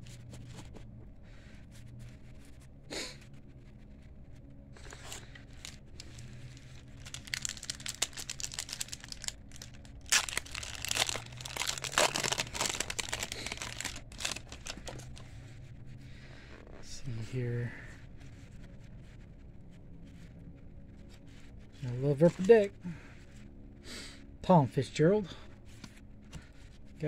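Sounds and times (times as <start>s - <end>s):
foil wrapper crinkling and tearing: 4.8s - 15.4s.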